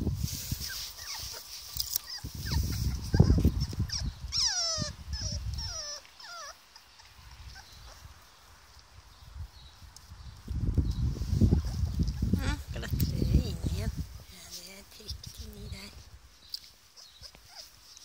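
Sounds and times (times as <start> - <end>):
puppies whining: 0.6 - 8.1, 16.9 - 18.0.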